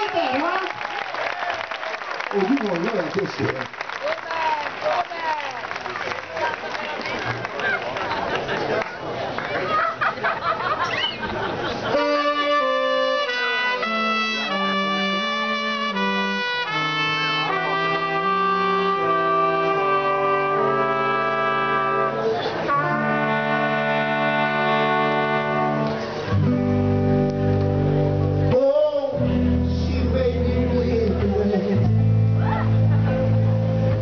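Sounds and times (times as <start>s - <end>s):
trumpet playing long notes: 11.9s - 27.2s
bass line: 12.0s - 34.0s.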